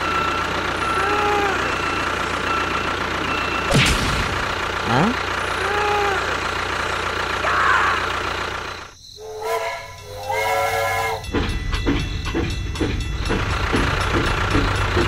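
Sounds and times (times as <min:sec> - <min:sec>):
engine idling: 0:00.0 - 0:10.3, 0:11.2 - 0:15.0
steam train whistle: 0:09.2 - 0:11.3
engine with regular knock: 0:11.2 - 0:15.0.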